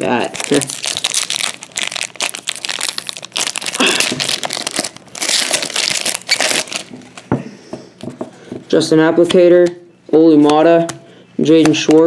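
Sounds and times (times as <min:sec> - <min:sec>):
foil wrapper crinkling: 0:00.0 - 0:07.2.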